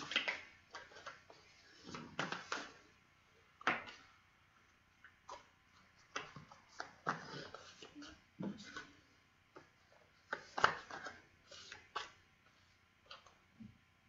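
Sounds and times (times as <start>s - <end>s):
cards being shuffled: 9.6s - 12.2s.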